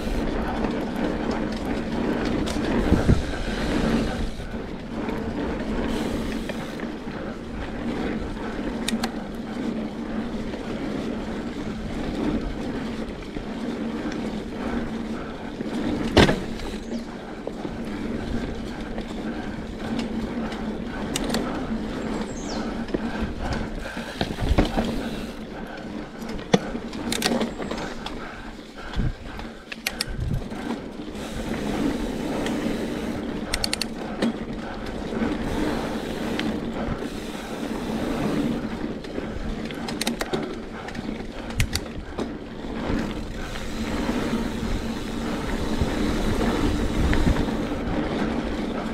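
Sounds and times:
bike drivetrain clicking: 0.0 - 48.9
bike tyres on packed dirt: 0.0 - 48.9.

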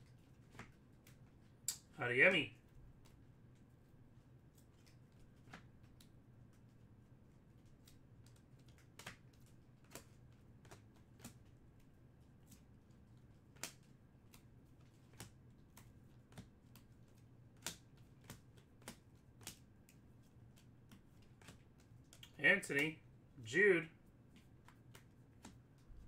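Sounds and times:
trading cards clicking and tapping: 0.0 - 2.0, 7.6 - 23.1, 24.2 - 26.0.

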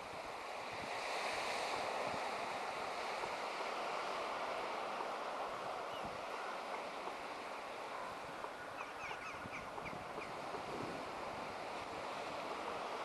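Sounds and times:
sea surf washing onto shore: 0.0 - 13.0
wind buffeting microphone: 8.5 - 12.5.

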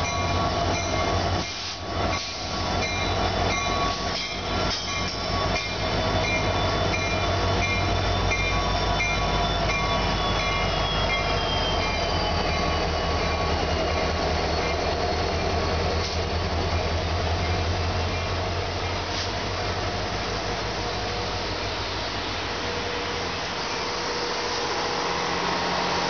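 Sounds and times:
high wheel squeal: 0.0 - 16.3
locomotive engine hum: 0.0 - 26.0.

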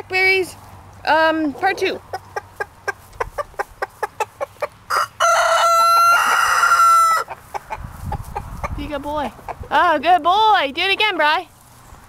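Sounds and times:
rooster clucking: 1.4 - 9.8
rooster crowing: 4.9 - 7.4.

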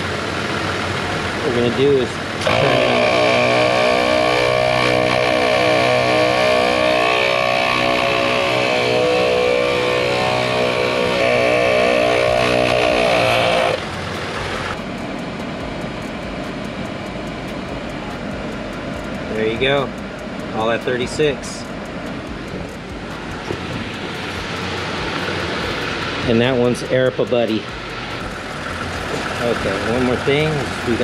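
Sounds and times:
air compressor running: 0.0 - 31.0.

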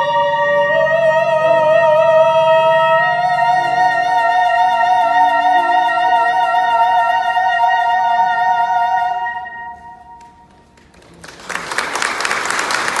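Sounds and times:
applause: 10.5 - 13.0.

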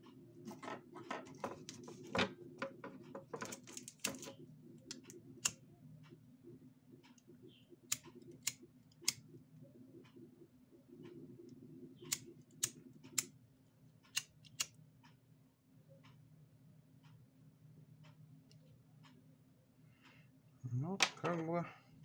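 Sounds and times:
faint low hum: 0.0 - 22.0
small clicks and taps: 0.5 - 6.2.

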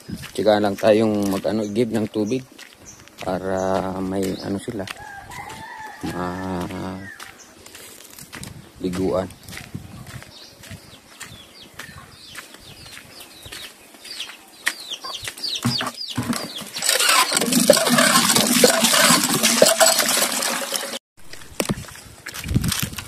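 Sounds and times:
bird chirping: 0.0 - 5.5, 8.8 - 18.8
water gushing into a trough: 16.8 - 21.0.

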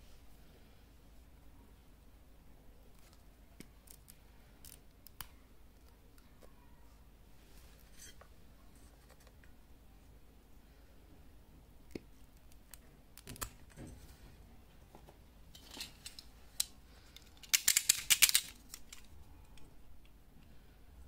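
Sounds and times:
hand tools clicking on cable: 15.6 - 19.6.

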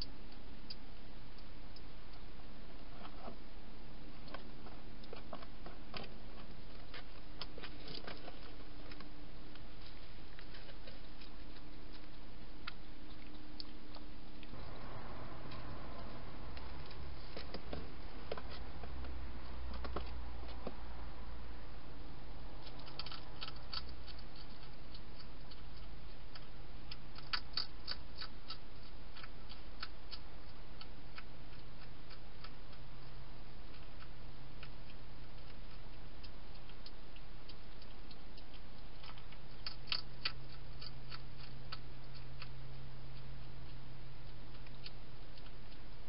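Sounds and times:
steady low hum: 0.0 - 46.0
hedgehog crunching dry food: 4.2 - 14.7, 22.6 - 46.0.

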